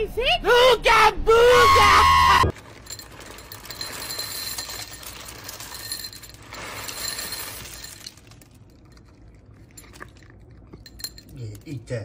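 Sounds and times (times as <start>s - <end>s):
kibble pouring into a bowl: 2.5s - 9.2s
kibble scattering on tiles: 2.5s - 11.4s.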